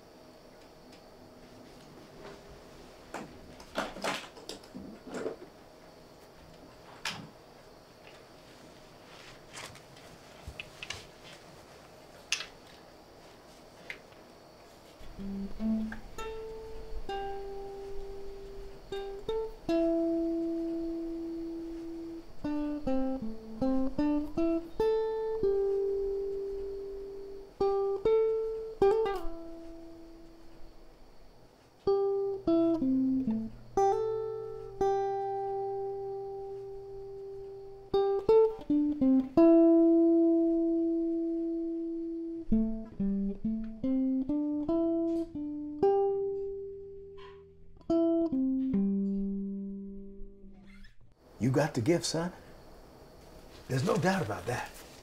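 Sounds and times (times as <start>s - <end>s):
electric guitar melody: 15.0s - 30.6s, 31.8s - 50.7s.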